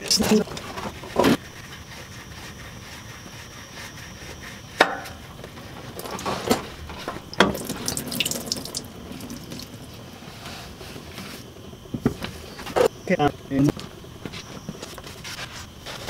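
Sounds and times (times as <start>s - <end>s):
oil dripping into pan: 7.4s - 9.8s.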